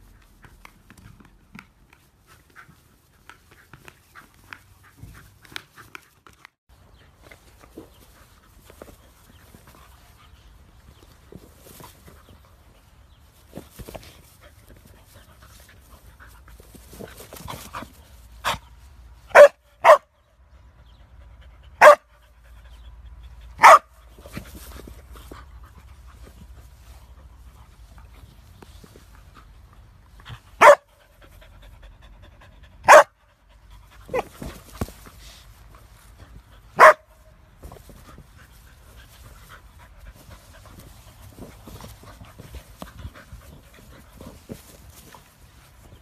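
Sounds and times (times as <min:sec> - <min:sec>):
dog barking: 0:19.3 - 0:20.1, 0:21.8 - 0:22.1, 0:23.6 - 0:23.9, 0:30.6 - 0:30.9, 0:32.9 - 0:33.1, 0:36.8 - 0:37.0.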